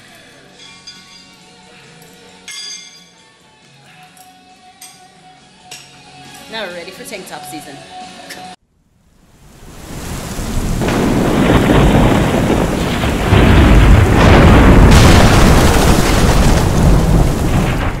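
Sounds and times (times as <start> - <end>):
rain hissing: 9.0 - 18.0
thunder rumbling: 9.6 - 18.0.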